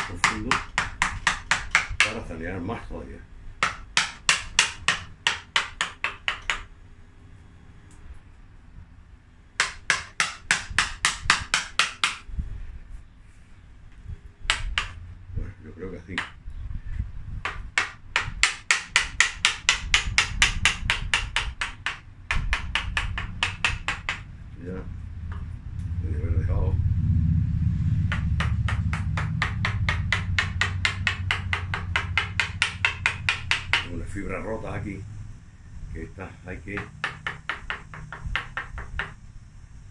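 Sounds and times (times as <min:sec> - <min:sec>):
fast hammer-like taps on wood: 0:00.0 - 0:02.2, 0:03.6 - 0:06.7, 0:09.6 - 0:12.2, 0:14.5 - 0:15.0, 0:17.4 - 0:24.3, 0:28.1 - 0:34.0, 0:36.8 - 0:39.2
low steady hum: 0:00.0 - 0:39.9
tool knocking into wood: 0:28.1 - 0:33.9, 0:36.8 - 0:39.2.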